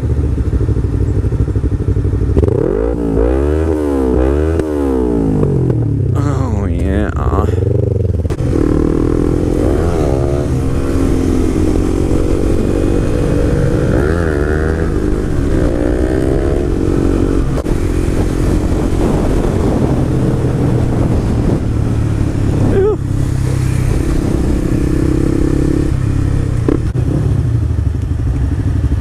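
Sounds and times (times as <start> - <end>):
motorcycle engine revving: 0.0 - 6.5, 7.1 - 29.0
wind noise: 5.2 - 27.6.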